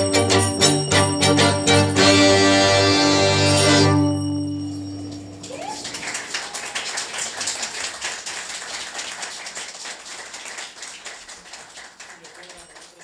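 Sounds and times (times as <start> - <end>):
audience applause: 5.0 - 13.0.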